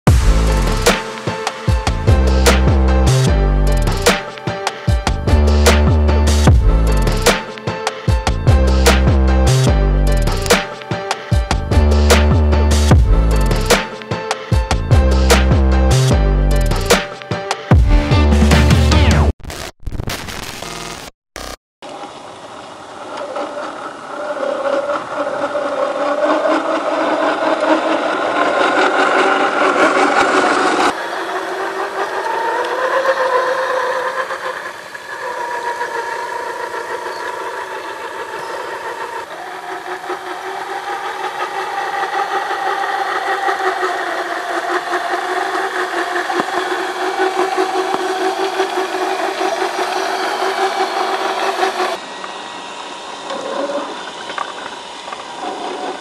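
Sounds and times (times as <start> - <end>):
electric motor whining: 21.9 - 56.0.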